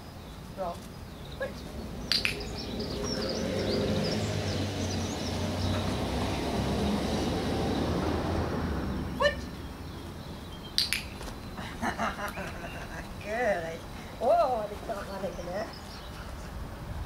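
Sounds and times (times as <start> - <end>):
small birds chirping: 0.0 - 16.8
distant traffic rumble: 0.0 - 17.0
sharp click: 2.1 - 2.5, 10.8 - 11.3.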